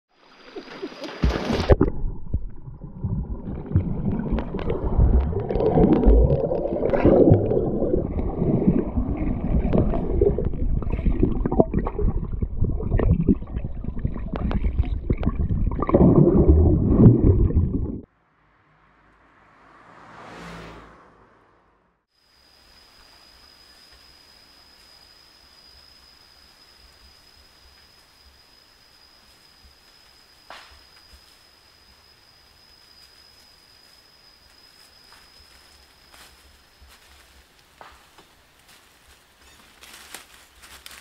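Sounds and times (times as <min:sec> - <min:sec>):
underwater water gurgling: 0:00.4 - 0:18.1.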